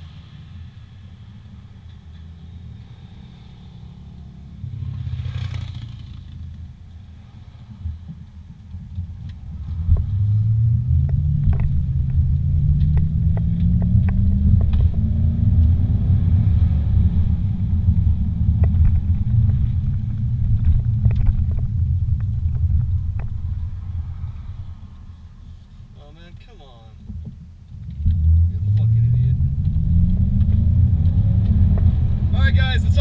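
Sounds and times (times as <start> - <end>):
road rumble: 0.0 - 33.0
car engine accelerating: 9.2 - 25.1, 27.8 - 33.0.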